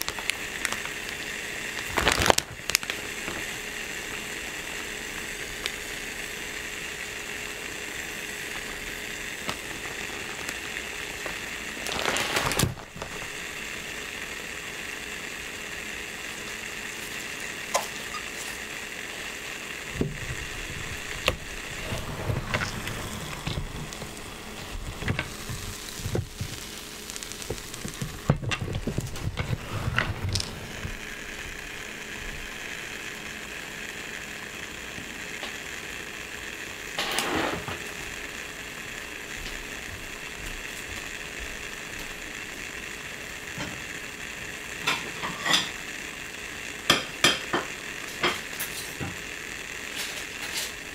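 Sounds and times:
pops and crackles: 0.0 - 4.3, 5.1 - 6.0, 8.4 - 13.6, 16.4 - 18.6, 19.8 - 31.6
dough sizzling in waffle maker: 0.0 - 50.9.

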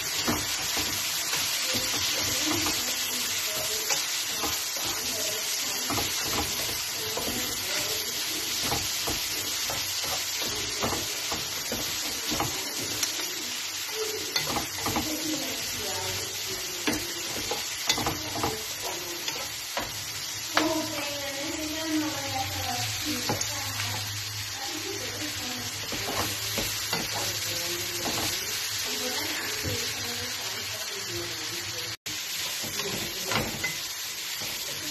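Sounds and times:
spatula scraping a pan: 0.0 - 21.5, 25.7 - 30.1
noodles sizzling in a wok: 0.0 - 34.9.

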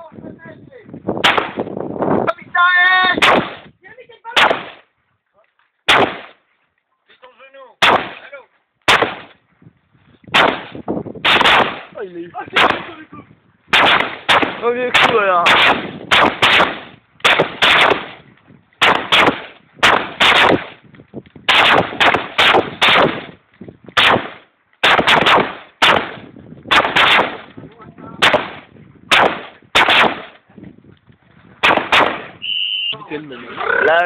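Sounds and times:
rifle shots with echo: 1.2 - 1.7, 3.2 - 3.7, 4.4 - 4.8, 5.9 - 6.4, 7.8 - 8.3, 8.9 - 9.4, 10.3 - 13.0, 13.7 - 18.2, 18.8 - 20.8, 21.5 - 23.3, 24.0 - 27.5, 28.2 - 30.4, 31.6 - 32.4.

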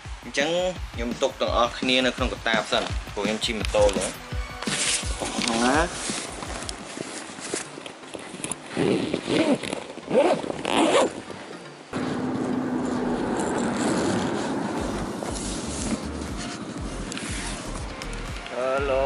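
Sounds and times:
muffled rustle: 3.7 - 11.7
zipper pulled shut: 4.7 - 11.3, 15.2 - 18.2.

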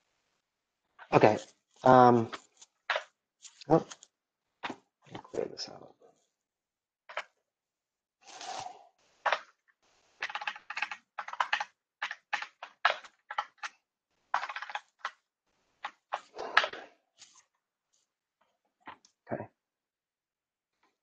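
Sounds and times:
computer keyboard keys tapping: 10.2 - 13.7, 14.4 - 15.2.

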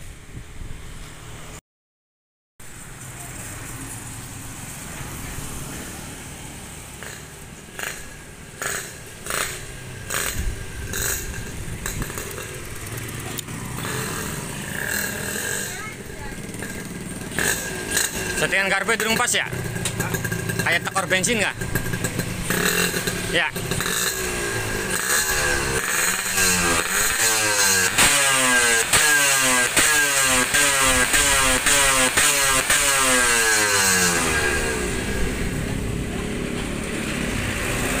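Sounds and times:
motorcycle engine drone: 2.7 - 38.0
sharp exhaust bursts: 6.6 - 35.9.

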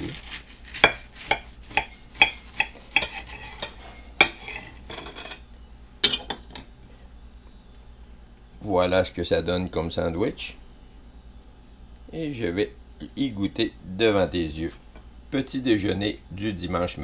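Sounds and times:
knife crunching through toast: 0.0 - 3.8
knife clacking on a plate: 0.8 - 5.4.

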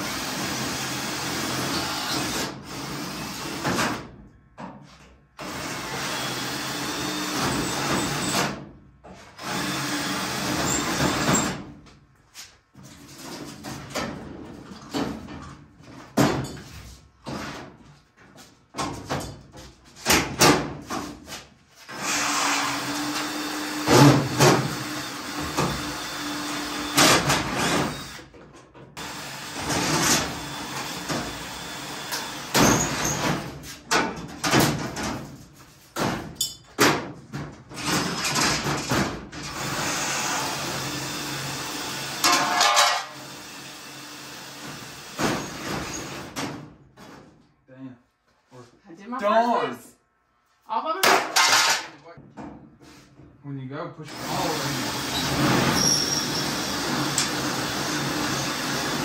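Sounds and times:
cordless drill drilling metal: 0.0 - 3.6, 5.4 - 8.4, 9.4 - 11.5, 21.9 - 28.3, 29.0 - 33.2, 39.5 - 46.3, 54.1 - 59.0
sheet metal knocks and clatters: 32.6 - 39.4, 42.2 - 43.1, 51.0 - 52.8.

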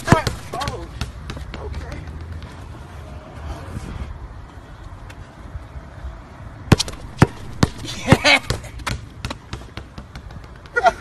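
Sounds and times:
basketball bouncing on concrete: 0.0 - 2.6, 6.7 - 10.8.

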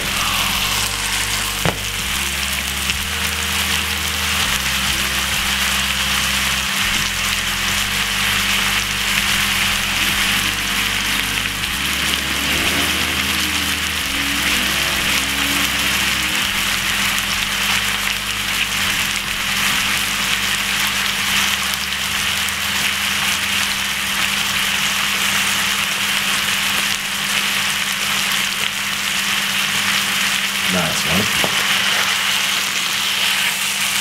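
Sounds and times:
low hum: 0.0 - 26.0
hot oil sizzling: 0.0 - 34.0.

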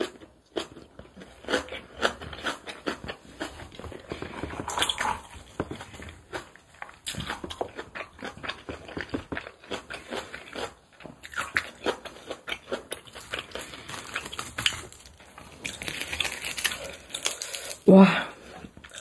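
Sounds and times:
close chewing with wet mouth clicks: 0.0 - 15.0.

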